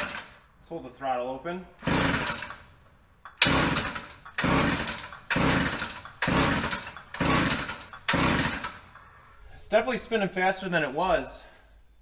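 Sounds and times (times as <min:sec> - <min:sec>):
chainsaw engine cranking: 0:00.0 - 0:00.4, 0:01.8 - 0:02.7, 0:03.3 - 0:09.1
recoil starter pulls: 0:00.0 - 0:00.4, 0:01.8 - 0:02.7, 0:03.3 - 0:09.1.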